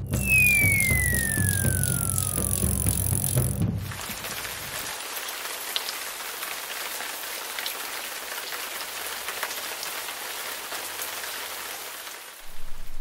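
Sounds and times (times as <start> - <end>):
raindrops ticking close by: 0.0 - 12.4
steady rain hiss: 2.8 - 13.0.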